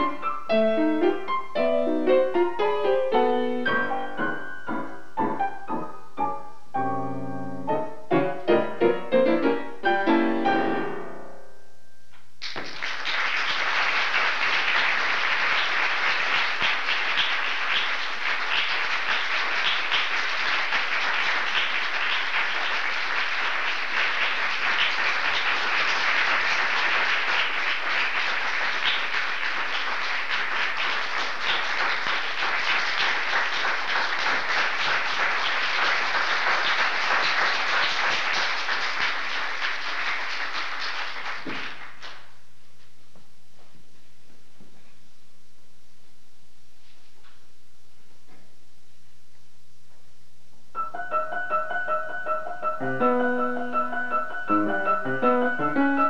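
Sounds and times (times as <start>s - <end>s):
audience applauding: 12.4s - 42.4s.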